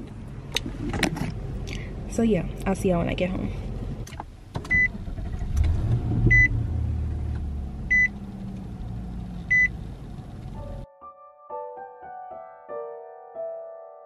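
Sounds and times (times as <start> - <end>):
car engine starting and idling: 0.0 - 10.8
dashboard warning chime beeping: 4.7 - 4.9, 6.3 - 6.5, 7.9 - 8.2, 9.5 - 9.7.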